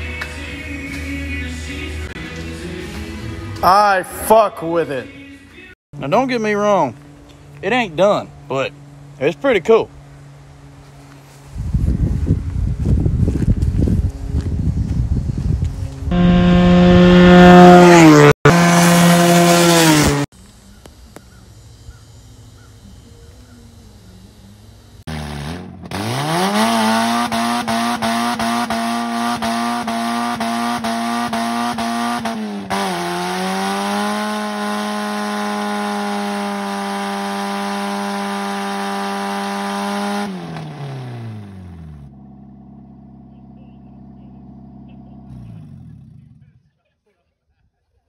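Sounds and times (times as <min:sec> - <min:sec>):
car engine revving hard: 0:16.1 - 0:20.3, 0:25.1 - 0:43.2.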